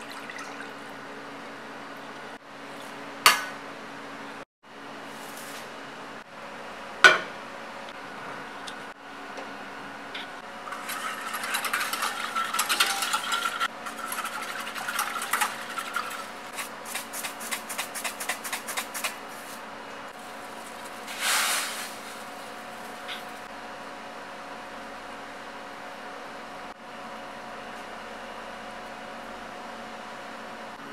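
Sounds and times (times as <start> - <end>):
whisk scraping and clinking in pan: 10.6 - 19.2.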